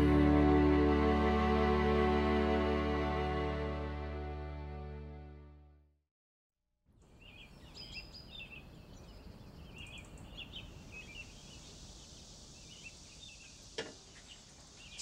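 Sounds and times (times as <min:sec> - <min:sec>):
small birds chirping: 0:07.0 - 0:15.0.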